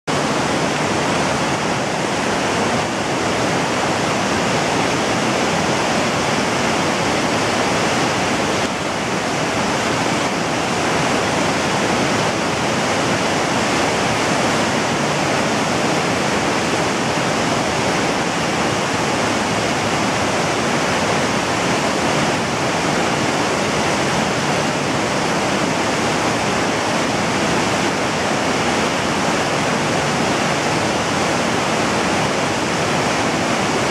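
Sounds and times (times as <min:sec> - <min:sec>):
river rushing over rocks: 0:00.1 - 0:33.9.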